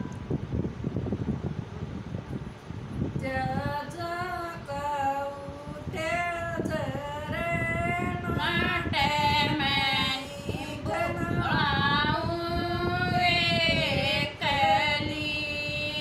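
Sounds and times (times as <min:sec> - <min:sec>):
women singing unaccompanied: 0:03.2 - 0:16.0.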